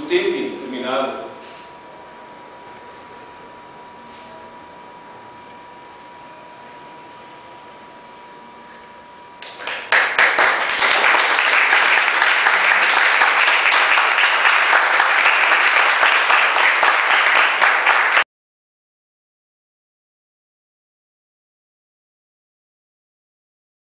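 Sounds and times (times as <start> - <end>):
audience applauding: 9.4 - 18.2.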